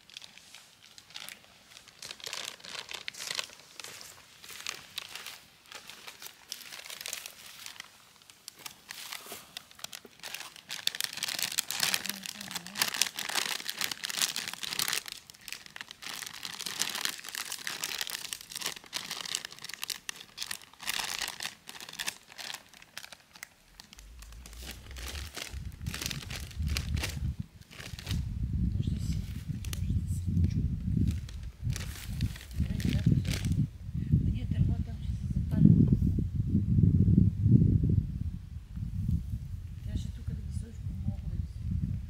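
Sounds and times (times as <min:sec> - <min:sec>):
packaging crinkling and rustling: 0:00.0 - 0:28.3, 0:31.0 - 0:33.6.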